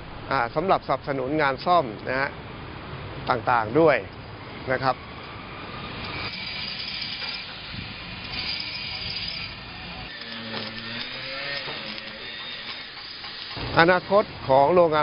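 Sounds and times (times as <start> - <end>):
welding hiss and crackle: 6.1 - 15.0.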